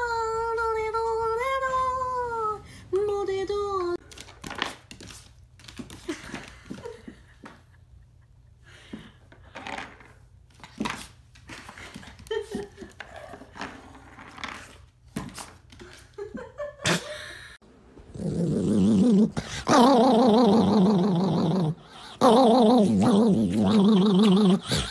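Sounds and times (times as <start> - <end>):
puppy growling and yipping: 18.1 - 24.9.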